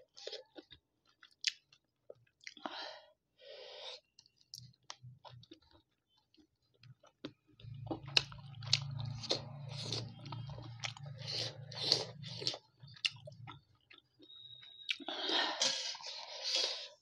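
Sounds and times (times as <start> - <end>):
low steady hum: 7.6 - 14.0.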